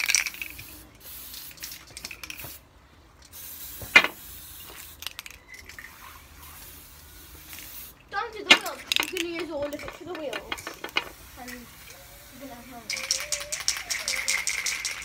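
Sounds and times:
aerosol spray can hissing: 11.1 - 15.0.

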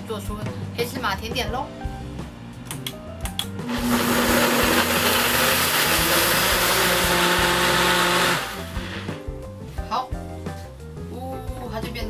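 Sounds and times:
blender whirring: 3.7 - 9.2.

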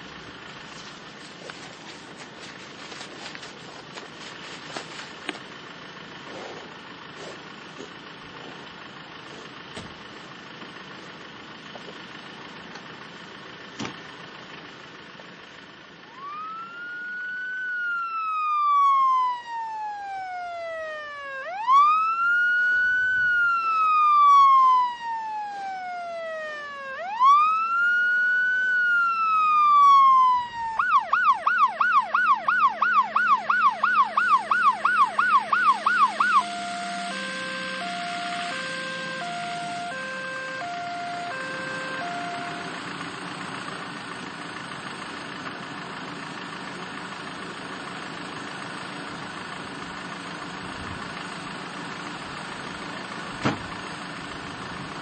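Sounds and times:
emergency siren wailing and yelping: 16.1 - 43.1.

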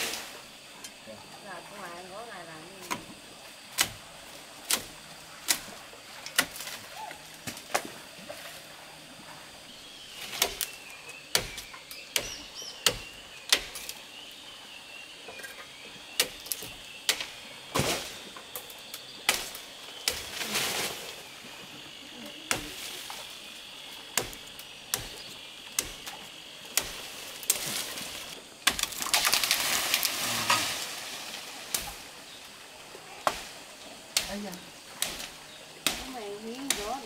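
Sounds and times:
leafy branches rustling: 0.0 - 15.2, 15.9 - 37.0
branches cracking and snapping: 4.6 - 7.9, 24.1 - 32.1.

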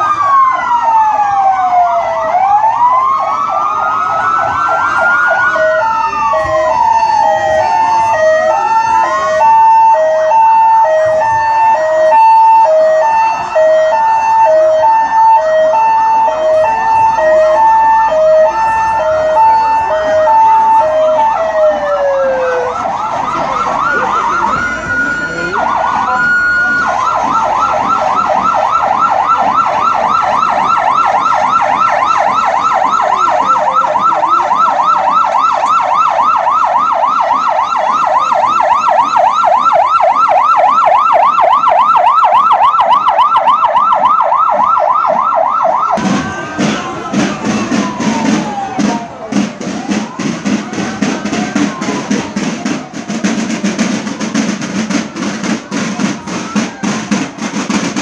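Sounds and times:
two-tone hi-lo siren: 0.0 - 57.2
fast siren yelp: 0.0 - 58.0
rising and falling siren wails: 0.0 - 58.0.

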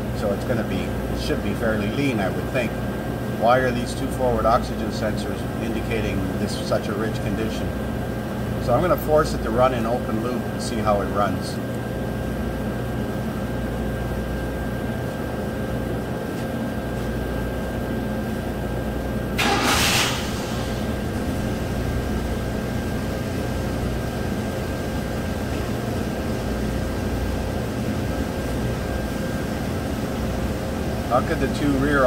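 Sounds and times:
engine starting: 19.4 - 20.9
engine idling: 19.4 - 32.0.

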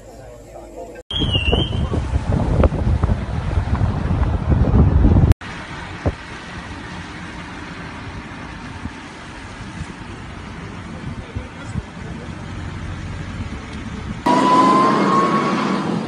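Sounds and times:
low rumble: 1.8 - 6.2.

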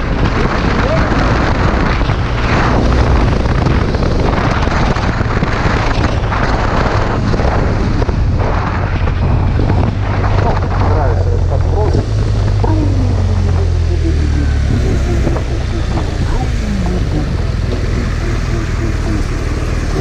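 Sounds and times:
wind buffeting microphone: 0.0 - 20.0
motorcycle engine running: 9.1 - 20.0.

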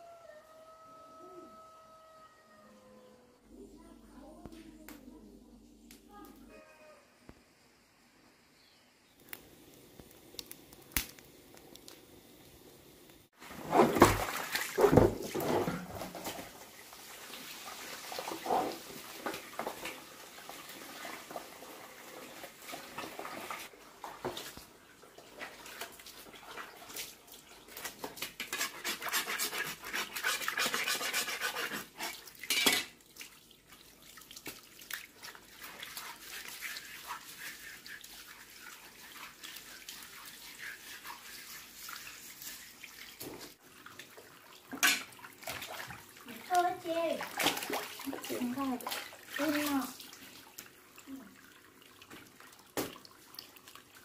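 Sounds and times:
wood fire crackling: 9.2 - 13.4
water running from hose: 13.7 - 54.0
scrubbing chopping board: 27.8 - 32.3.

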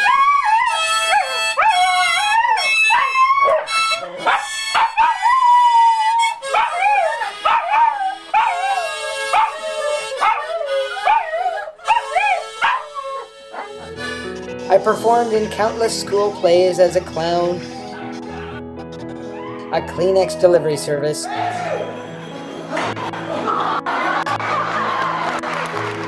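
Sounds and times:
dog howling: 0.0 - 14.0
harmonica playing: 0.0 - 25.8.

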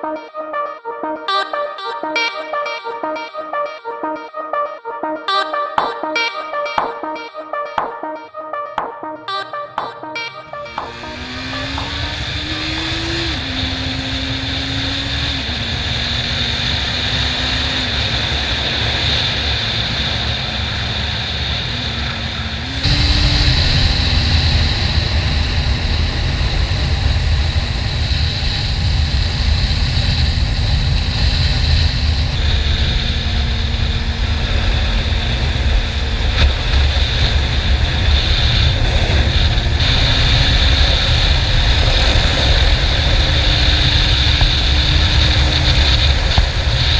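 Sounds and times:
motorcycle engine running: 10.9 - 17.8, 22.6 - 46.9.

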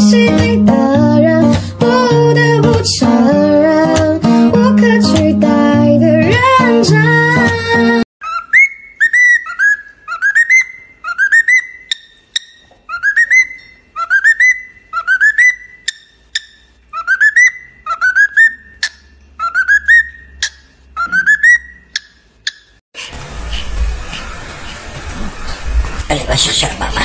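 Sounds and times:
cockatiel whistling: 8.2 - 22.7
sharp bird clicks: 20.4 - 22.8.

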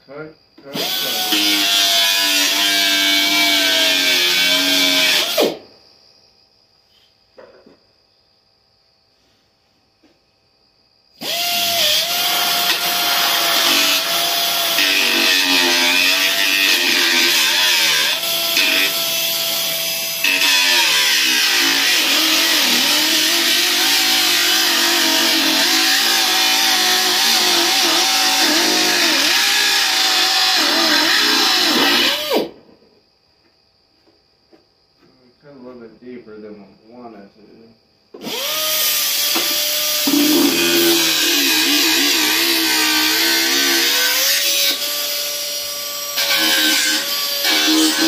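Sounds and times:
pneumatic cut-off wheel cutting metal: 39.2 - 44.8.

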